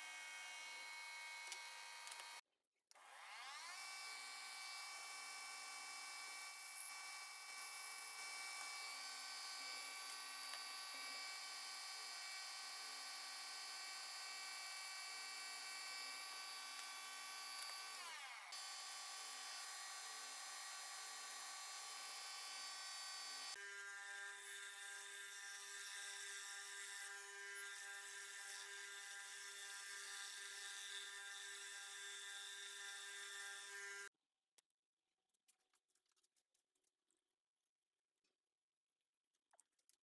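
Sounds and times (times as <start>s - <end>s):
metal lathe motor whine: 3.0s - 23.6s.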